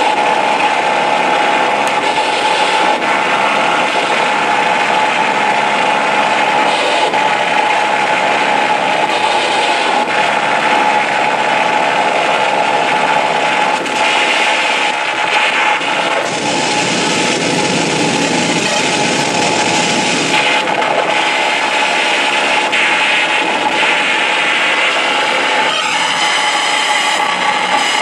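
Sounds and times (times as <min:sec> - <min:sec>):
harsh noise music: 0:00.0 - 0:28.0.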